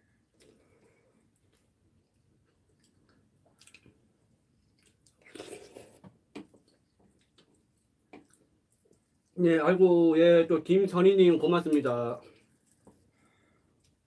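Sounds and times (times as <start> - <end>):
person chewing: 0.3 - 9.4.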